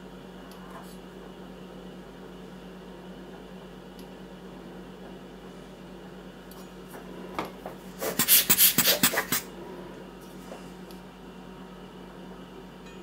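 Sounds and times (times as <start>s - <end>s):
hand blower bulb puffing air: 8.0s - 9.5s.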